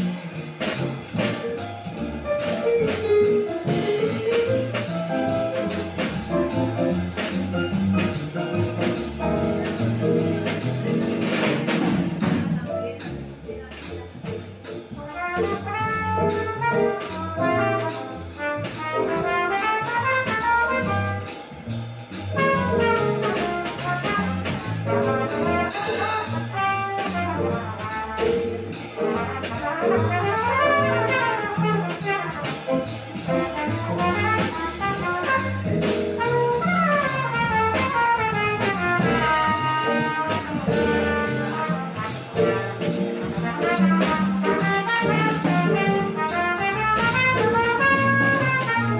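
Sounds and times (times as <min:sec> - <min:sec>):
drum kit with cymbals: 0:00.0 - 0:48.9
upright double bass: 0:00.0 - 0:48.9
trumpet melody: 0:15.0 - 0:21.4, 0:22.4 - 0:42.6, 0:43.2 - 0:48.9.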